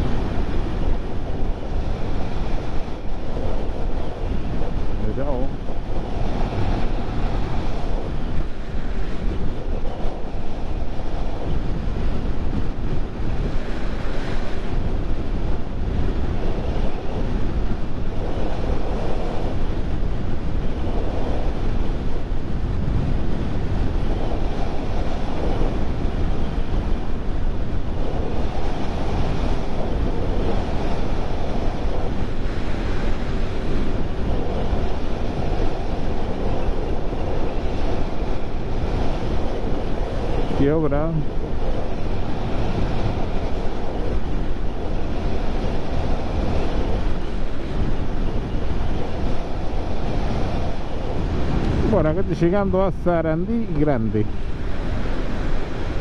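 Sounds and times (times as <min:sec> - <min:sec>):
wind noise on microphone: 0:00.0 - 0:56.0.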